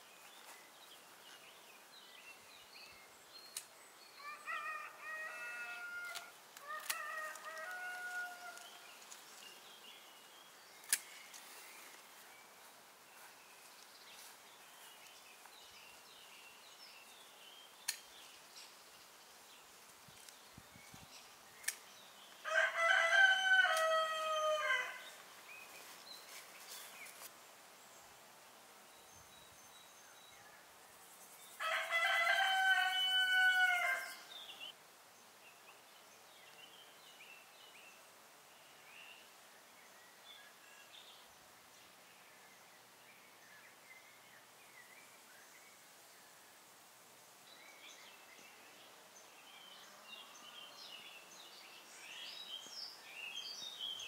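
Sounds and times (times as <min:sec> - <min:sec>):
faint birdsong: 0:00.0 - 0:54.0
rooster crowing: 0:04.2 - 0:08.7, 0:22.4 - 0:25.0, 0:31.6 - 0:34.3.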